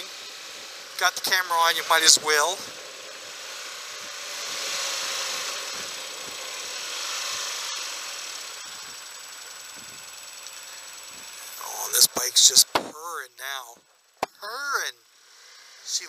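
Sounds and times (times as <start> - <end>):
motorcycle running: 0.0 - 16.0
sharp click: 12.0 - 13.0.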